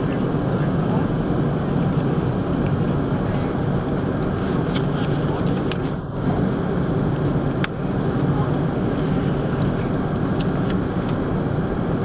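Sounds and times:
airplane cabin rumble: 0.0 - 12.0.

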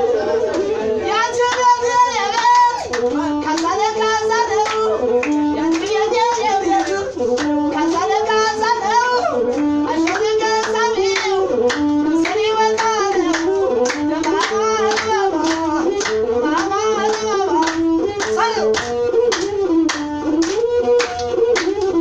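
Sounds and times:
handclaps: 2.3 - 3.8, 4.6 - 8.2, 9.5 - 22.0
bowed fiddle melody: 2.9 - 22.0.

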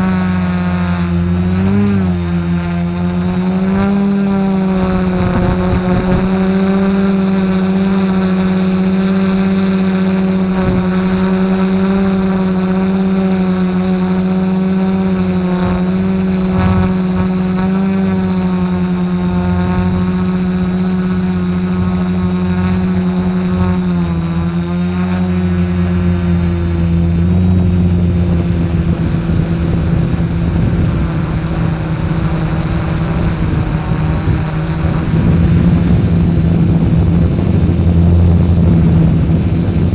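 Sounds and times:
drone motors and propellers humming: 0.0 - 39.9.

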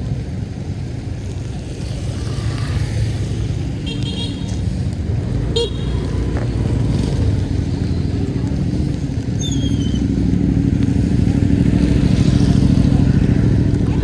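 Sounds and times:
motorcycle engine running: 5.1 - 14.0.

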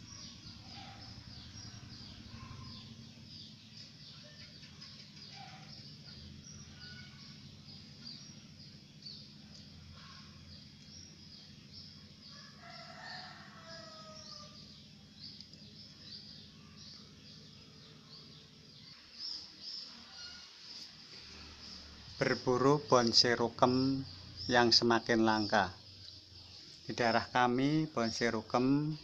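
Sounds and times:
distant rooster crowing: 0.0 - 3.2, 12.2 - 15.0, 19.8 - 20.6
small birds chirping: 0.0 - 29.0.

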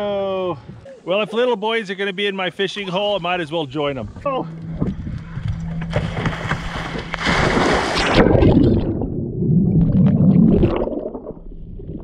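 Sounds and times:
muffled churning underwater: 4.0 - 12.0
loud splash into water: 5.9 - 11.4.

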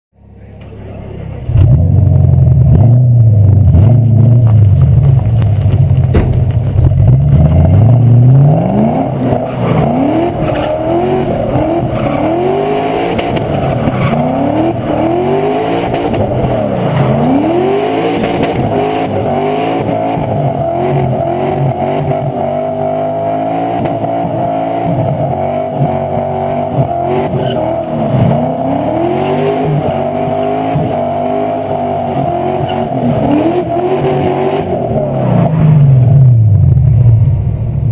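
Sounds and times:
car engine revving: 0.2 - 37.9
tyres squealing: 27.1 - 30.2.

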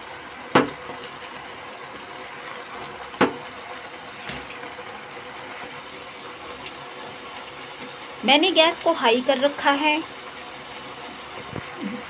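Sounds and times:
syrup sizzling in a pan: 0.0 - 12.0
spatula knocking on pan: 3.2 - 3.4.

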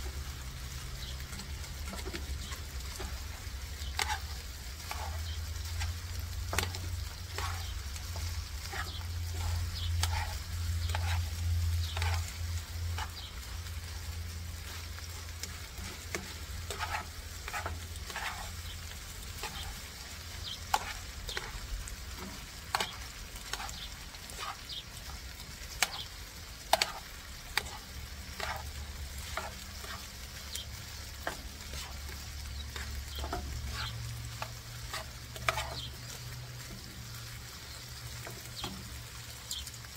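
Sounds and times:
low steady hum: 0.0 - 30.0
meat sizzling in a pan: 0.0 - 39.9
metal tongs scraping pan: 1.2 - 13.3, 14.6 - 30.6, 31.2 - 36.0.

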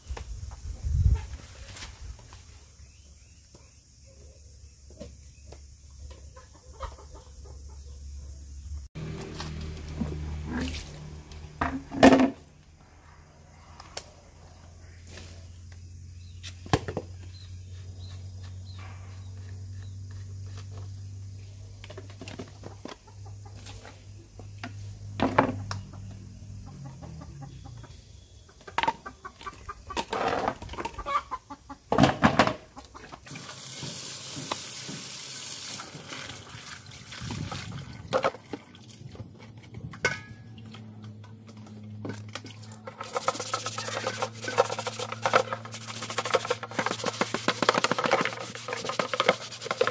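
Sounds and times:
chickens clucking: 5.4 - 8.4, 22.4 - 24.5, 25.5 - 33.3, 42.5 - 49.1
sponge scrubbing plastic: 42.5 - 49.9
plastic feeder parts knocking: 43.0 - 49.9.

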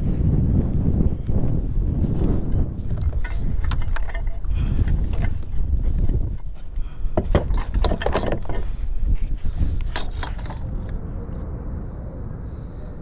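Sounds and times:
steady low rumble: 0.0 - 13.0
fishing gear knocking: 2.8 - 8.8.

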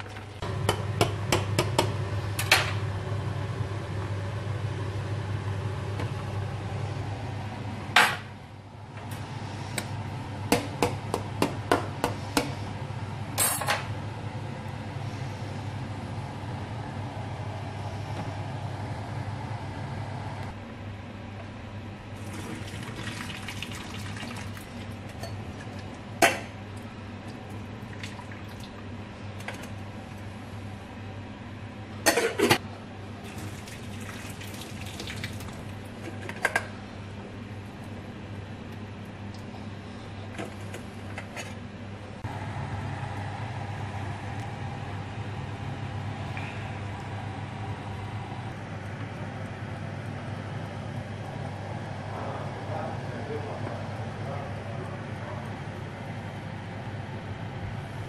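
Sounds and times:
low steady hum: 0.0 - 58.0
water pouring into a sink: 22.2 - 25.9, 27.8 - 28.8, 33.2 - 35.8.

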